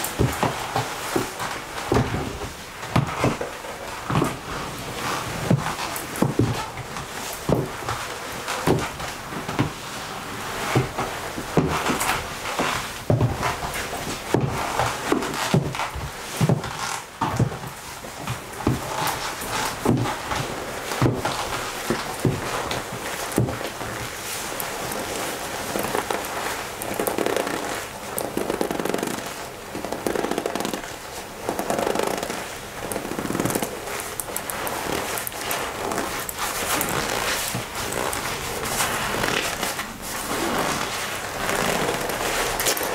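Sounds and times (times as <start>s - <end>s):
leather jacket rustling and creaking: 0.0s - 42.9s
leather jacket crumpling: 24.5s - 42.9s.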